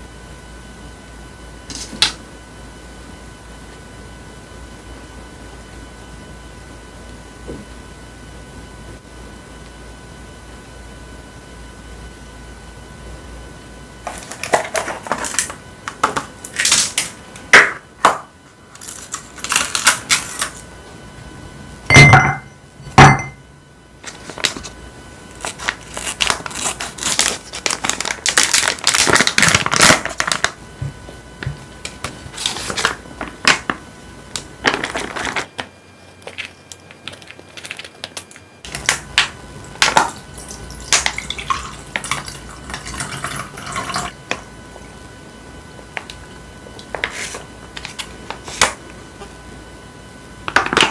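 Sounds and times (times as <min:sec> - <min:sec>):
plastic packaging crinkling: 0:14.0 - 0:17.2, 0:18.7 - 0:20.6, 0:24.0 - 0:30.6, 0:31.8 - 0:44.1.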